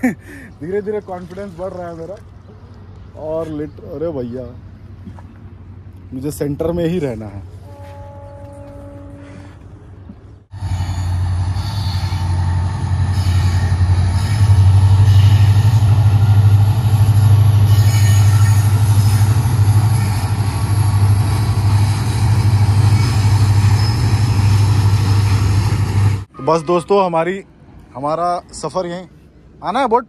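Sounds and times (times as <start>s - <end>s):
train wheels rumbling on bridge: 7.9s - 26.3s.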